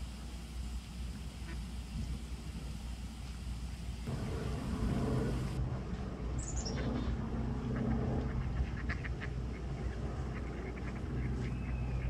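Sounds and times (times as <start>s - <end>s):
low steady hum: 0.0s - 12.0s
bird chirp descending: 6.4s - 7.1s
ducks quacking: 6.6s - 11.7s.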